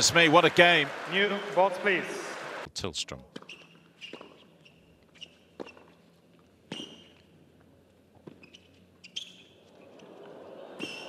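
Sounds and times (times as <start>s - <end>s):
crowd noise: 0.0s - 2.7s, 9.6s - 11.0s
racket hitting tennis ball: 3.3s - 4.5s, 5.2s - 6.0s.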